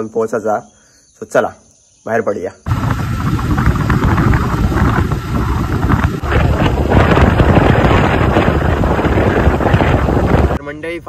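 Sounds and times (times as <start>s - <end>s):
motorcycle engine running: 2.7s - 10.6s
road noise: 2.7s - 10.6s
wind rumbling on microphone: 2.7s - 11.0s.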